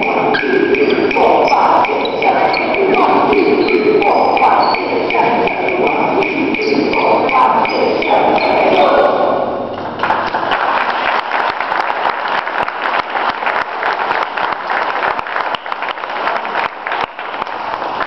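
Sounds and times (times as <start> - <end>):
group of people applauding: 10.0 - 18.0.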